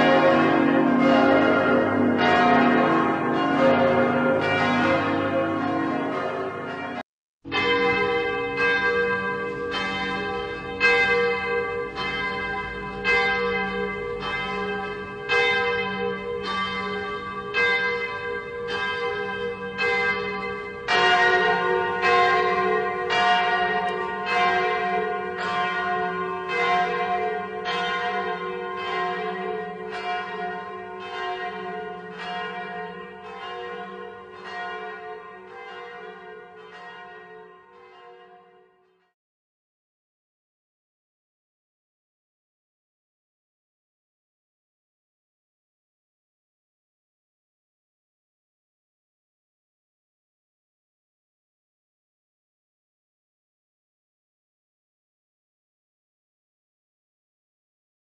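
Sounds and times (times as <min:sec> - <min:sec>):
church bells tolling: 0:00.0 - 0:39.1.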